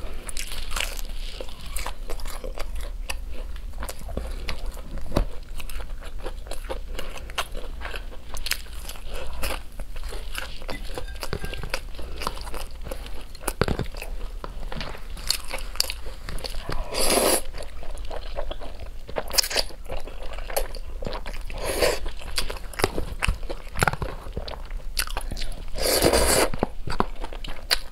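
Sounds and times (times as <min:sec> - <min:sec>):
slurping noodles: 0:16.9 - 0:17.5, 0:25.8 - 0:26.5.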